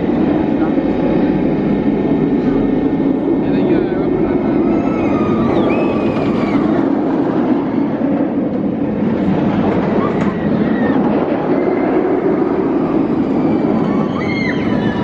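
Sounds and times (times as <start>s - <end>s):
roller coaster train rumbling: 0.0s - 15.0s.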